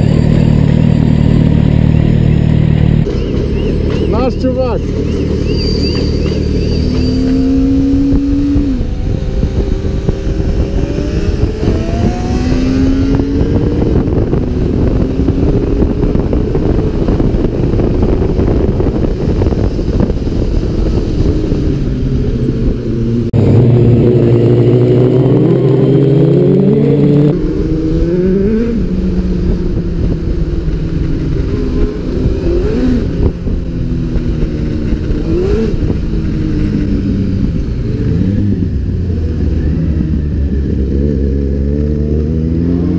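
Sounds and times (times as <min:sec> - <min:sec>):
motorcycle engine revving: 0:00.0 - 0:42.9
road noise: 0:00.0 - 0:42.9
wind noise: 0:00.0 - 0:42.9.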